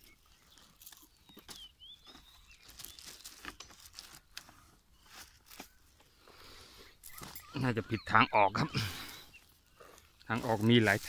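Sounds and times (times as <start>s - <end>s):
footsteps through grass and stubble: 0.0s - 6.2s, 8.8s - 11.0s.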